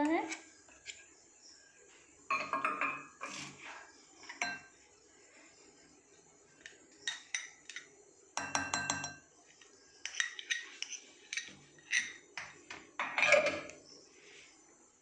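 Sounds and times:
spoon clinking against glass bowl: 2.3s - 3.2s, 4.3s - 4.7s, 7.0s - 9.3s.

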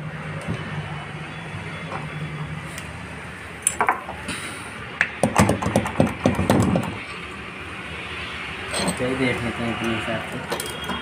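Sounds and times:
metal parts clicking and rattling: 10.5s - 11.0s.

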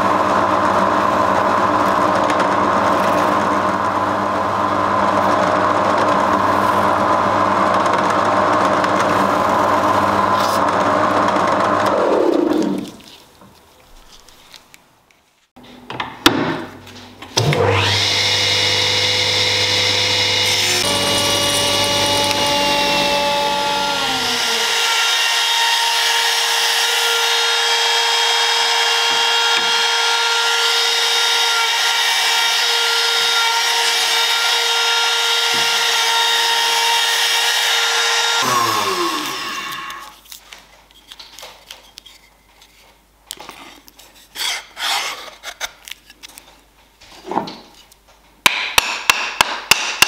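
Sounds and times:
trim router routing wood: 0.0s - 13.0s, 17.4s - 40.2s
drill press winding down: 17.4s - 40.1s.

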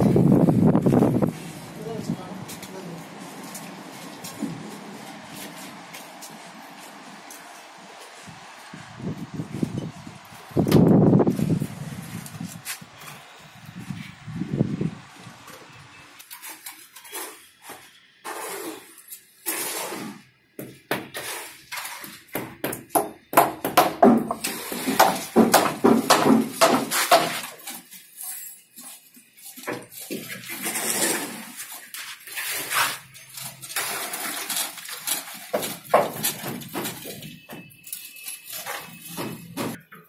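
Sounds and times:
wet concrete sloshing: 29.9s - 37.3s.

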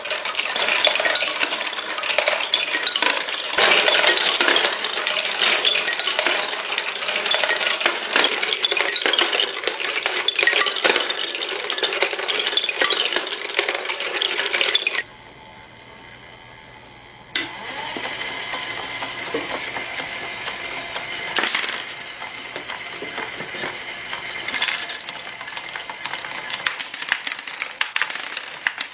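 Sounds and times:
marbles clattering on wooden tracks: 0.0s - 15.1s, 17.8s - 28.9s
electric motor and gear drive: 14.8s - 27.8s.

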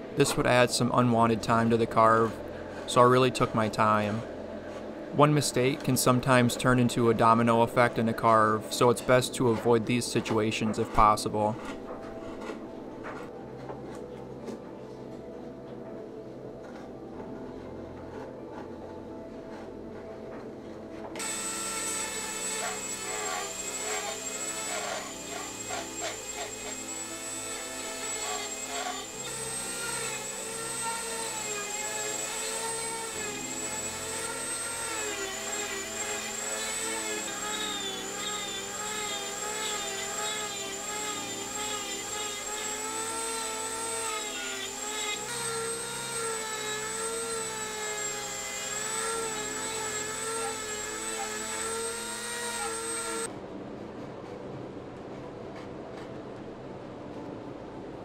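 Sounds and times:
rotary tool whining: 21.2s - 53.3s.

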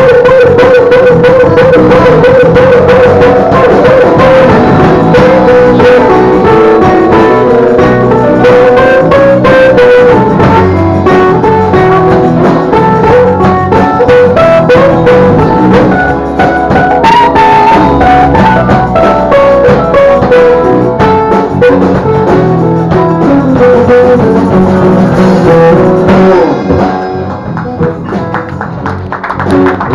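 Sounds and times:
wailing harmonica: 0.0s - 22.8s
drum kit beat: 0.0s - 29.9s
electric bass: 0.0s - 29.9s
strummed acoustic guitars: 0.0s - 29.9s.

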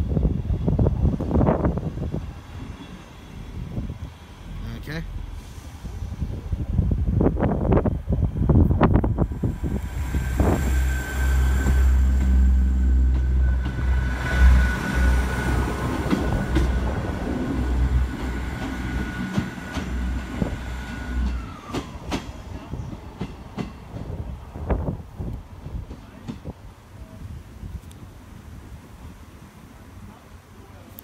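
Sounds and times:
diesel train rumbling past: 0.0s - 30.6s
high whine: 7.2s - 21.7s
rail clicks: 8.7s - 26.6s.

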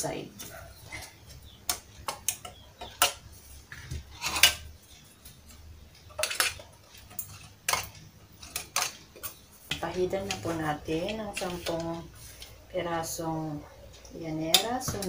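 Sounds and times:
metal spoon clinking on aluminium: 6.1s - 11.9s.

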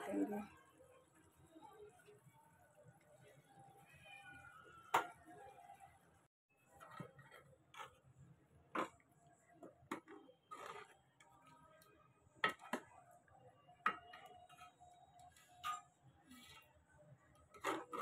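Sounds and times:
metal ladle scraping metal pot: 10.4s - 11.0s.

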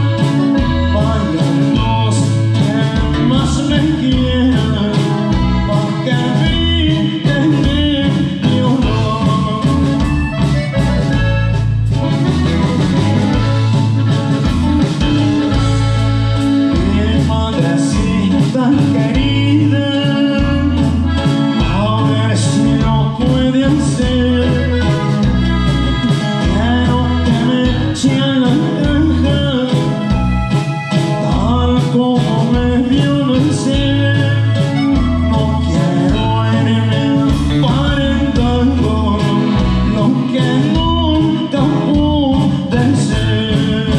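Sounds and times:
accordion melody: 0.0s - 43.9s
drums: 0.0s - 43.9s
electric bass: 0.0s - 43.9s
guitar strumming: 0.0s - 43.9s.

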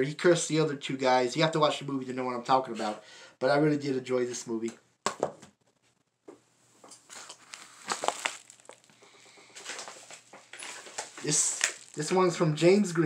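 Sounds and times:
plastic cases crinkling and clicking: 6.8s - 12.3s.

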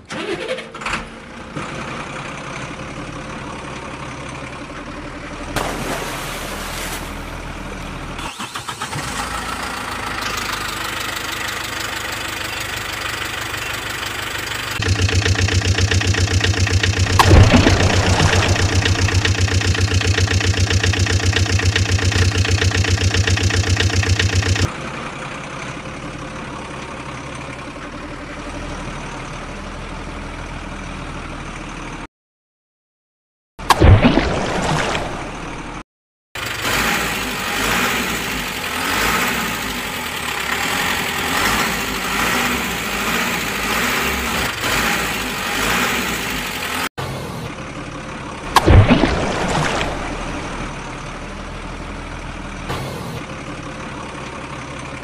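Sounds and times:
truck engine throbbing: 7.0s - 25.3s.

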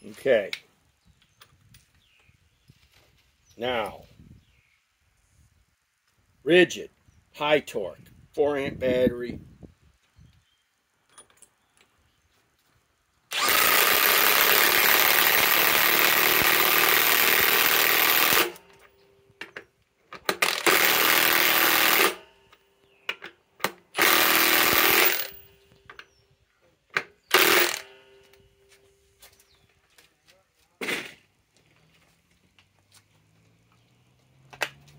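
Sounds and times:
impact wrench hammering: 27.3s - 28.3s.

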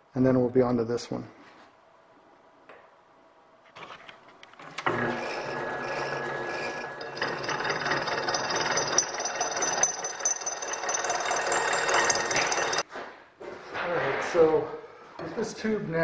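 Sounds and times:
end mill cutting steel tube: 4.8s - 12.8s
milling machine running: 4.8s - 12.8s.

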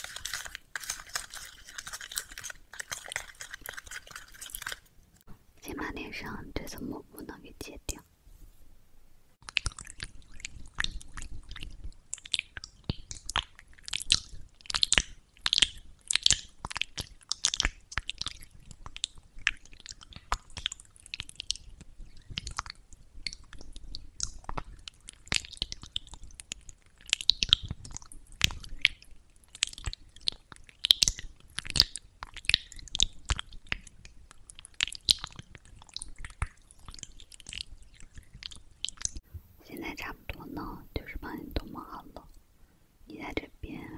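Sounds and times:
sticky clicks and smacks of paste: 0.0s - 4.9s.

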